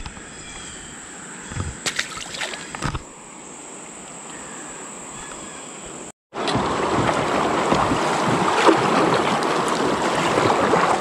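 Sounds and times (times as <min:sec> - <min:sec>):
faint outdoor hiss: 0:00.0 - 0:06.1.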